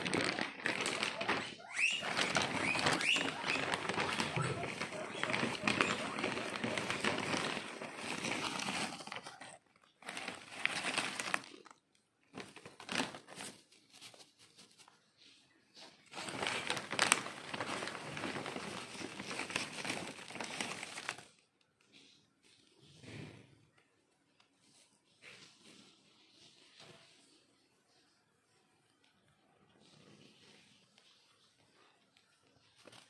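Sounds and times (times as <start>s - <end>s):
hay rustling and crackling: 2.1s - 9.1s.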